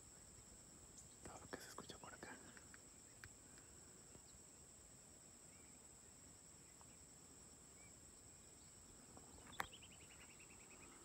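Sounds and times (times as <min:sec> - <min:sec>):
faint bird chirps: 0:00.0 - 0:04.7, 0:05.3 - 0:11.0
insects trilling: 0:00.0 - 0:11.0.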